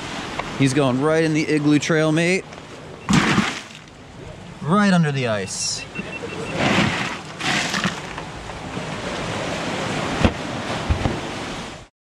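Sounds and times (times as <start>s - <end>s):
wind noise on microphone: 5.8s - 11.9s
ice rattling in cooler: 6.7s - 8.2s.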